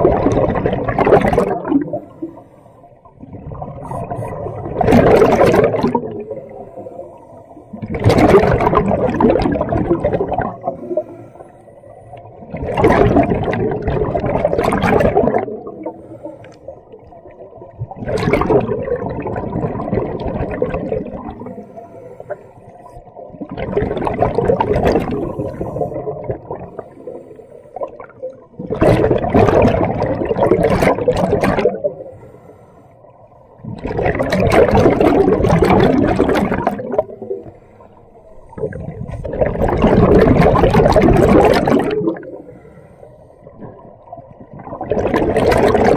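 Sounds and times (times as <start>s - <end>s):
exhaled bubbles rushing: 0.0s - 11.2s, 12.0s - 21.8s, 22.8s - 32.1s, 33.5s - 42.7s, 43.4s - 45.9s
regulator inhalations: 15.8s - 16.8s, 21.5s - 23.0s, 32.0s - 33.1s, 37.2s - 39.0s, 42.4s - 43.5s.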